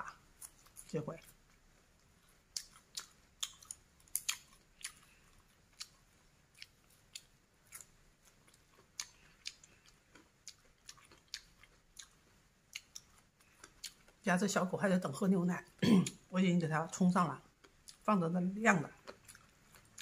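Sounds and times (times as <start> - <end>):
person chewing crunchy food: 0.3 - 14.2, 17.5 - 18.1, 18.9 - 20.0.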